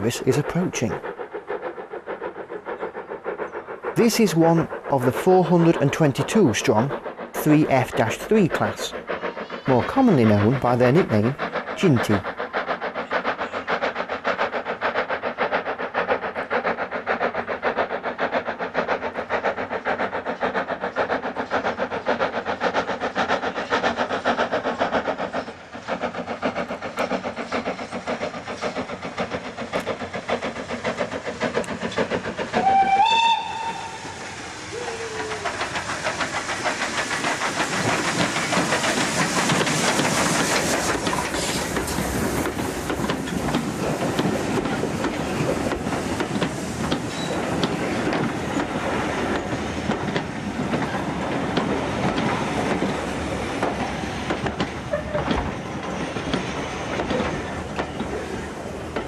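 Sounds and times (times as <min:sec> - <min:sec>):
steam hiss: 0:00.0 - 0:59.0
steam locomotive beats: 0:00.0 - 0:59.0
steam whistle: 0:32.6 - 0:34.1.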